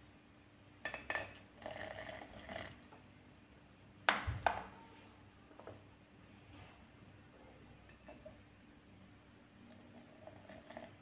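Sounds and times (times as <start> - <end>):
glass clink: 0.8 - 1.4
syrup pouring into a glass: 9.8 - 11.0.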